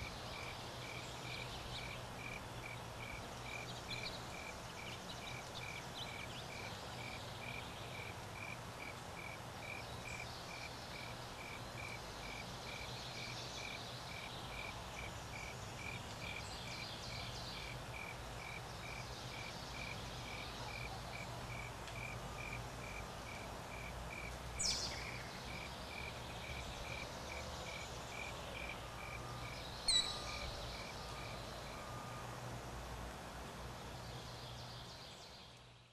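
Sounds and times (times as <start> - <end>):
low steady hum: 0.0 - 35.9
insect chirping: 21.5 - 32.2
faint bird chirps: 27.7 - 32.2.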